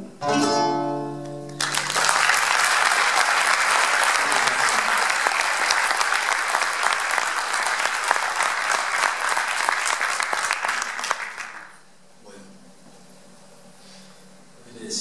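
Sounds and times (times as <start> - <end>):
audience applauding: 1.5 - 11.8.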